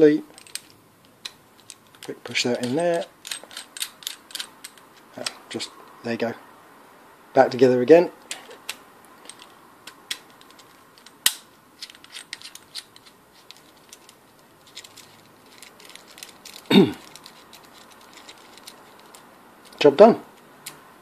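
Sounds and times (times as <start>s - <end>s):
metal connector parts clicking: 0.3s - 5.4s, 8.3s - 19.8s.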